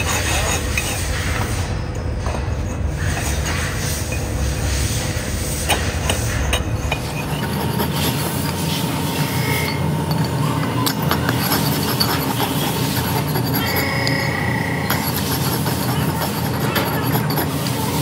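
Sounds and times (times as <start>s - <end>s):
metal blade rasping on metal: 0.0s - 1.5s, 5.4s - 18.0s
low workshop hum: 0.0s - 18.0s.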